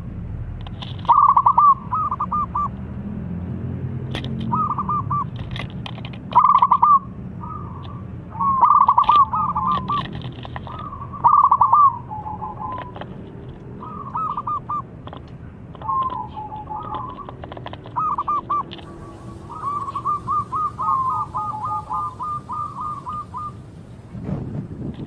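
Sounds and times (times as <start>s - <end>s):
small birds chirping: 0.9s - 2.9s, 4.3s - 24.1s
dove cooing: 1.0s - 2.7s, 4.4s - 5.4s, 6.3s - 13.2s, 13.8s - 23.7s.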